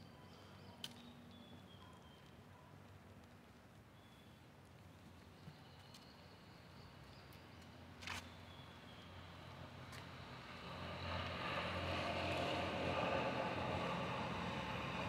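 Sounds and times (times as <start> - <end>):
road traffic: 6.9 - 15.0.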